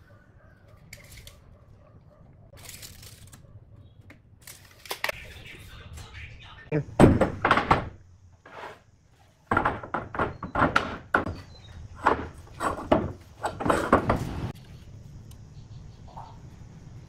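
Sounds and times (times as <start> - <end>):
knocks and thuds on wood: 7.0 - 8.0, 9.4 - 14.4.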